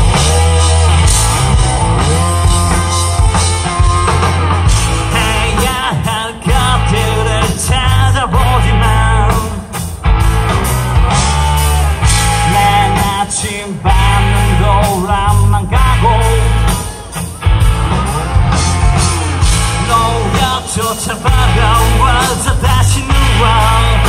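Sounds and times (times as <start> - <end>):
live rock band playing: 0.0 - 24.0
person singing: 4.7 - 9.9, 10.7 - 24.0.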